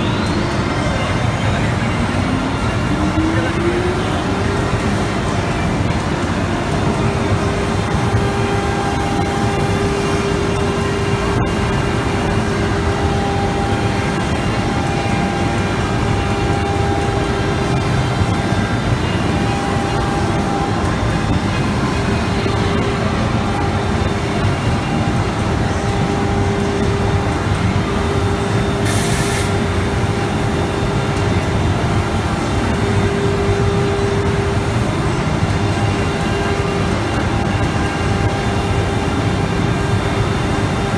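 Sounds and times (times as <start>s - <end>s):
router spindle whine: 0.0s - 28.9s
machine milling noise: 0.0s - 40.9s.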